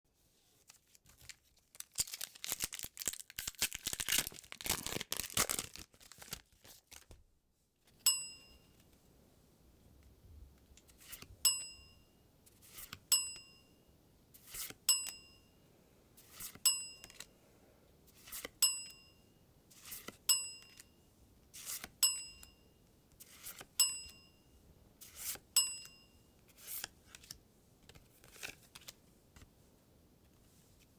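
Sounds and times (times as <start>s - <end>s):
foil wrapper tearing and crinkling: 0.8s - 7.1s
cards sliding: 12.5s - 13.0s, 14.4s - 14.8s, 16.2s - 17.3s, 18.2s - 18.5s, 19.7s - 20.8s, 21.6s - 21.9s, 23.2s - 23.7s, 25.0s - 25.4s, 26.5s - 29.5s.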